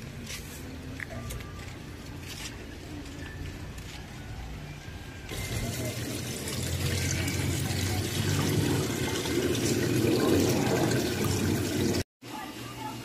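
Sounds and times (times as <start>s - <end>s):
fountain water pouring and splashing: 5.3s - 12.0s.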